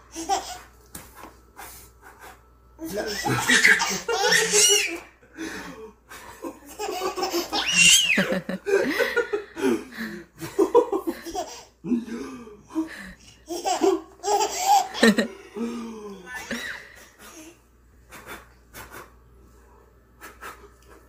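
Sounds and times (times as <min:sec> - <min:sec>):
baby laughing: 0:00.1 - 0:00.7, 0:02.8 - 0:05.1, 0:06.7 - 0:08.5, 0:11.1 - 0:11.7, 0:13.5 - 0:15.3
baby squealing: 0:03.1 - 0:05.0, 0:07.5 - 0:08.2.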